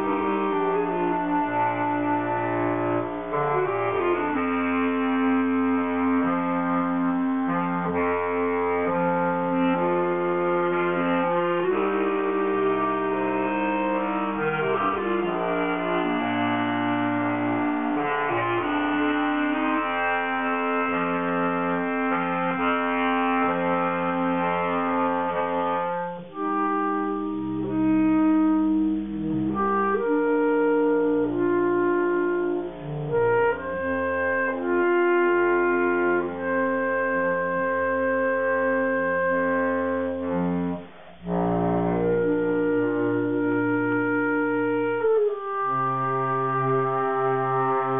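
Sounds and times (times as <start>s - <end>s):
bass clarinet quartet playing: 0.0s - 47.9s.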